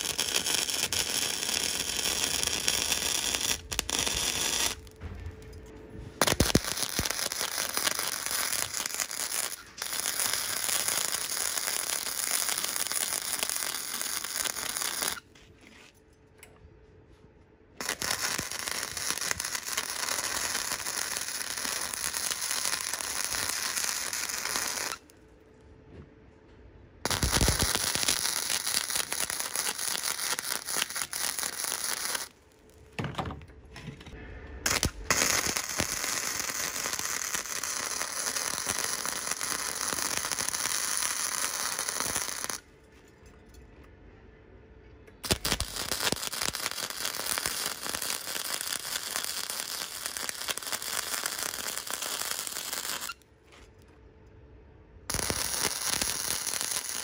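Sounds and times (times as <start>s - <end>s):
electric arc welding crackling: 0.0s - 5.0s, 6.2s - 15.2s, 17.8s - 25.1s, 27.1s - 32.3s, 34.7s - 42.6s, 45.2s - 53.2s, 55.1s - 57.0s.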